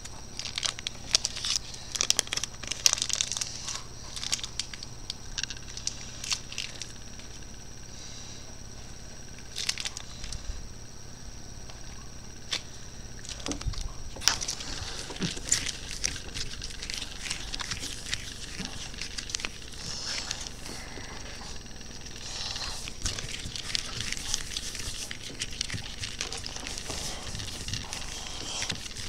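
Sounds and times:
faint high whine: 0.0s - 29.0s
scratching and tapping on desk: 22.2s - 29.0s.

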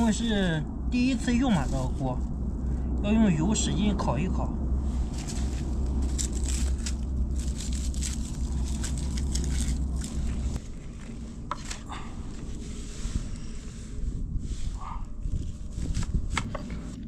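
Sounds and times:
steady low rumble: 0.0s - 17.0s
green onion crackling and rustling: 5.0s - 11.9s.

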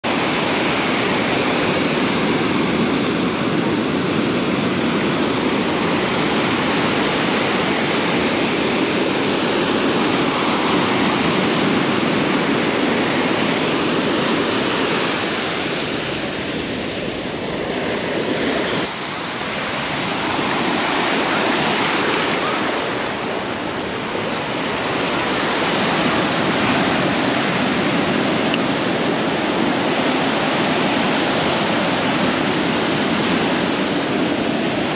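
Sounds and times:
ocean surf washing over sand: 0.0s - 34.9s.

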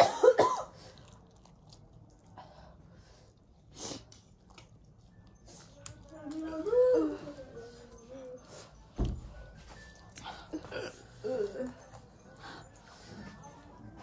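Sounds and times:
person coughing: 0.0s - 0.8s
person chewing: 0.7s - 2.4s.

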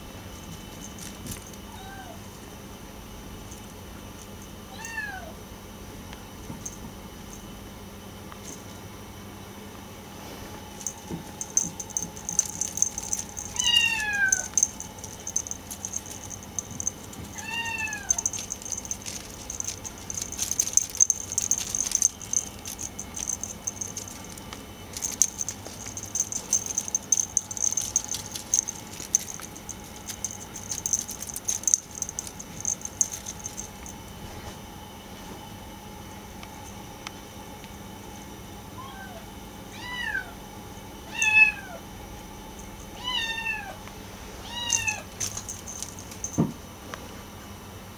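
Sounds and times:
rustles and clicks of toy: 0.4s - 1.7s, 10.7s - 34.5s, 44.6s - 46.5s
kitten meowing: 13.5s - 14.6s, 17.3s - 18.2s.

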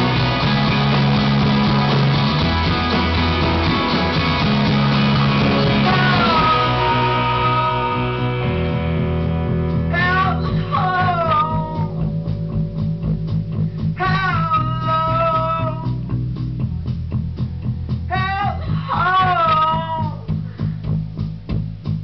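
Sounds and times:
electric guitars: 0.0s - 21.9s
bass guitar: 0.0s - 22.0s
drums: 0.0s - 22.0s
man singing: 5.4s - 8.5s, 9.9s - 12.2s, 14.0s - 16.0s, 18.1s - 20.3s.

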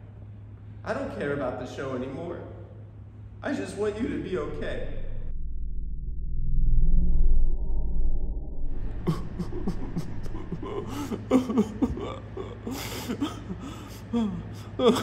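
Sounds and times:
man crying: 8.8s - 15.0s
shaky breaths: 8.9s - 14.8s.

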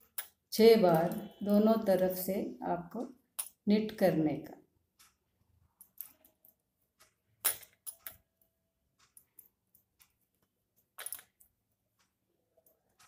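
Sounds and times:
knitting needles clicking: 2.9s - 4.0s, 4.9s - 13.0s.

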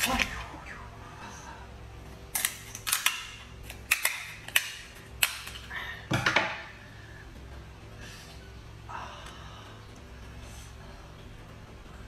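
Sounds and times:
scissors cracking crab shell: 2.3s - 5.7s.

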